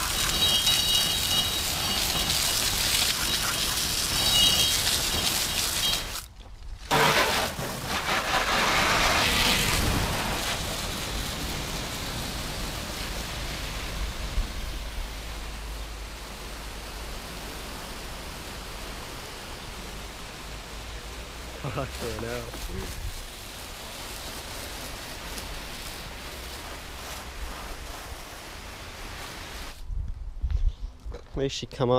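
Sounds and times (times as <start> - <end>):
hose spray hitting car: 0.0 - 6.3, 6.9 - 14.4, 21.3 - 29.8.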